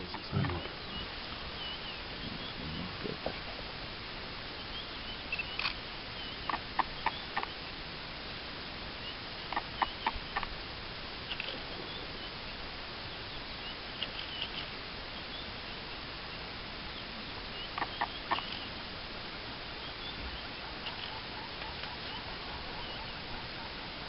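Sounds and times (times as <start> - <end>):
steady hiss: 0.0 - 24.0
faint high bird chirps: 0.1 - 2.8, 4.6 - 7.6, 11.2 - 12.4, 13.0 - 18.8, 19.8 - 24.0.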